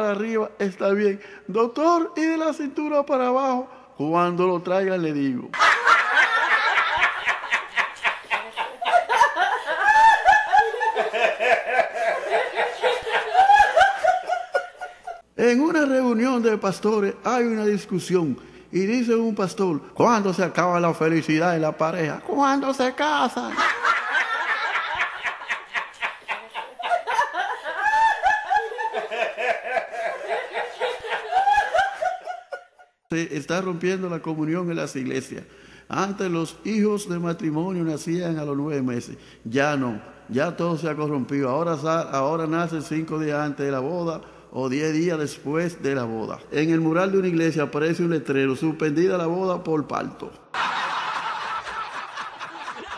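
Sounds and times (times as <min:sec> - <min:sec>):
group of people laughing: 0:05.6 - 0:15.2, 0:23.5 - 0:32.9, 0:50.5 - 0:52.9.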